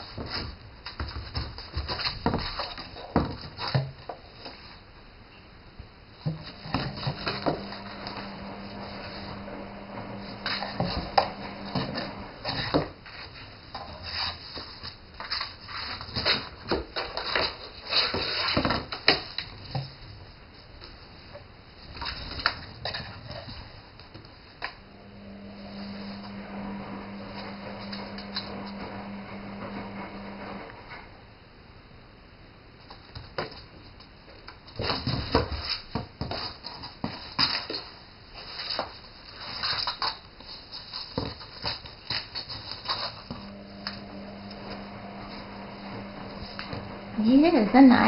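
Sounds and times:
cat scrabbling in cardboard box: 0:00.0 - 0:04.7, 0:06.2 - 0:08.2, 0:34.7 - 0:43.4.

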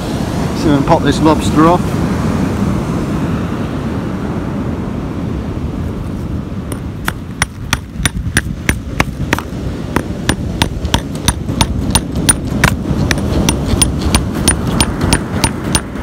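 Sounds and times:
steady low rush: 0:00.0 - 0:16.0
hammer striking steel chisel: 0:06.7 - 0:16.0.

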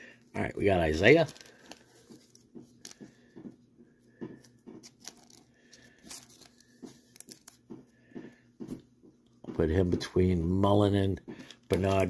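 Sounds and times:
cardboard cards shuffled: 0:00.7 - 0:03.6, 0:04.3 - 0:08.3, 0:11.4 - 0:12.0.

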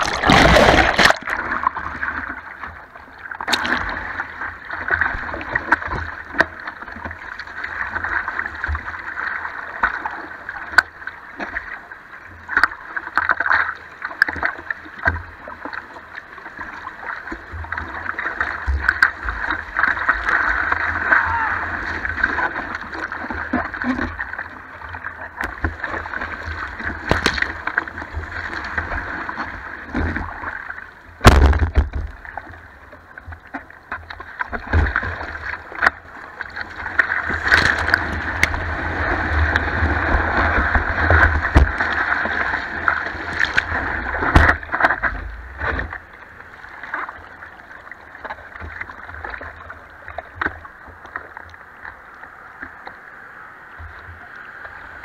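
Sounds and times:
ocean whitewash rushing: 0:19.2 - 0:23.2
water knocking against board: 0:31.2 - 0:32.1.

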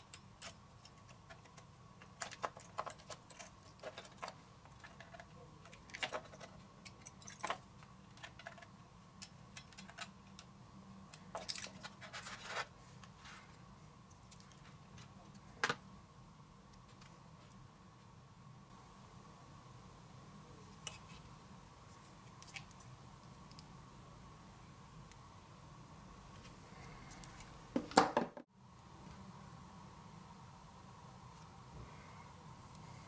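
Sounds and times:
small metal tool clicks and scrapes: 0:00.0 - 0:10.5.

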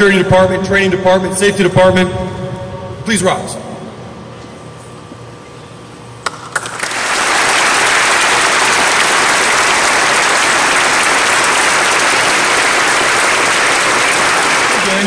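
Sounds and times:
audience applause: 0:06.5 - 0:15.0.

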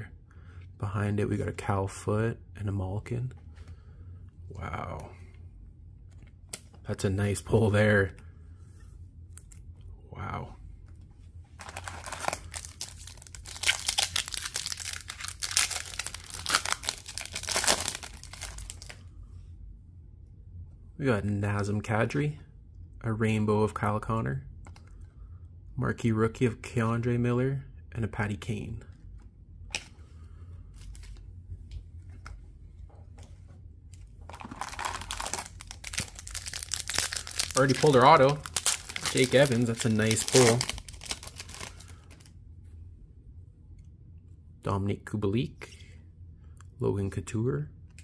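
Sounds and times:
foil wrapper crinkling and tearing: 0:11.6 - 0:19.0, 0:34.3 - 0:42.3.

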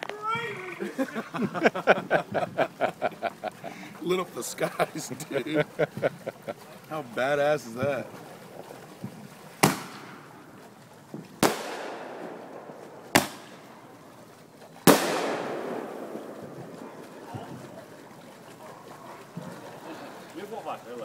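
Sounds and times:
fireworks bangs: 0:09.0 - 0:10.4, 0:11.1 - 0:14.0, 0:14.8 - 0:18.1.

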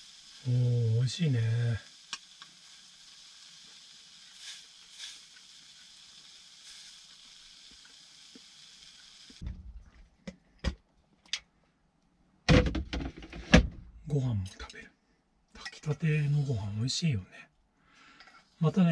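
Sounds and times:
fish sizzling in a frying pan: 0:00.0 - 0:09.4.

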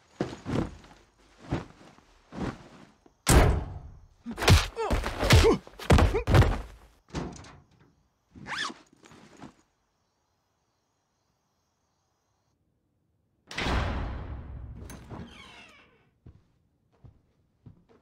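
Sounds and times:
heavy thuds and slams: 0:03.3 - 0:07.3
person grunting: 0:04.3 - 0:06.4.

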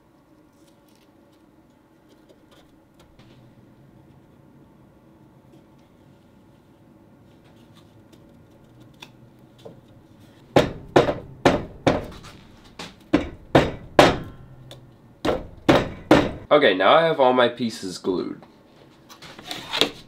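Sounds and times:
mallet knocking on wood: 0:10.5 - 0:12.2, 0:13.1 - 0:14.5, 0:15.2 - 0:16.5.

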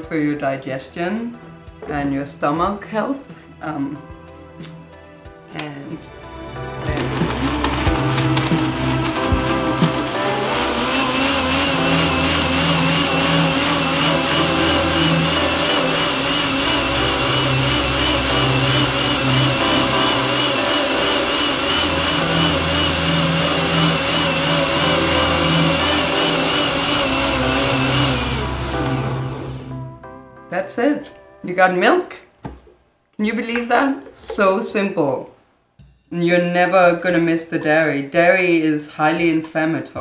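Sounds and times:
blender running at full speed: 0:06.7 - 0:29.8.

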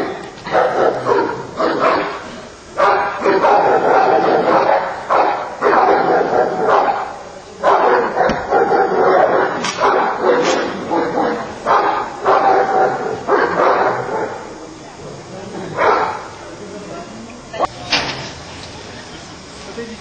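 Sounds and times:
dog barking: 0:00.5 - 0:02.2, 0:02.8 - 0:14.5, 0:15.8 - 0:16.3.

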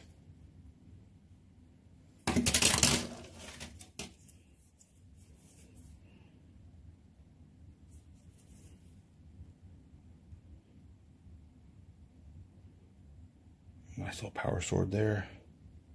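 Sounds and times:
plastic pieces clattering: 0:02.2 - 0:04.2.

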